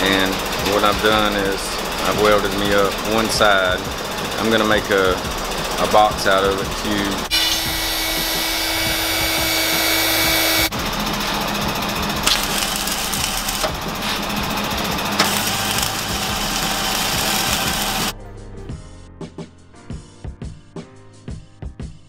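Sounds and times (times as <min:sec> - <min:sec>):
welder arc crackling: 0:07.2 - 0:18.1.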